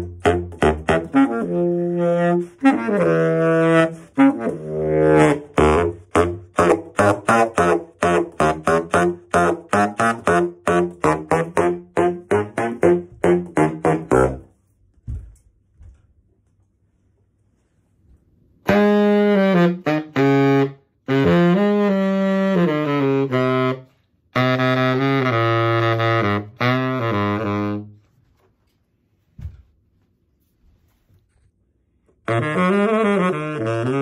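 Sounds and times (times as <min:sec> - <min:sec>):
baritone saxophone playing jazz: 0:00.0 - 0:14.6, 0:18.6 - 0:28.1, 0:32.2 - 0:34.0.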